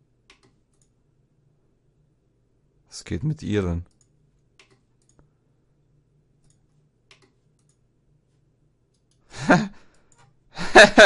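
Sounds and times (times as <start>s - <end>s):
computer mouse clicks: 0.2s - 1.0s, 3.8s - 5.3s, 6.4s - 7.9s, 8.9s - 9.2s
person speaking: 2.9s - 4.0s.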